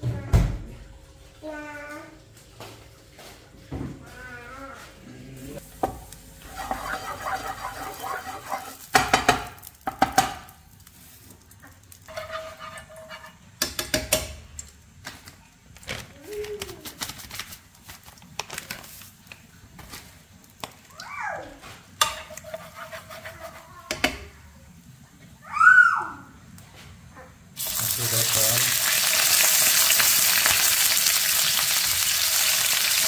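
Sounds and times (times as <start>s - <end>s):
kitchen pots and dishes clattering: 5.8s - 10.4s, 22.0s - 23.1s.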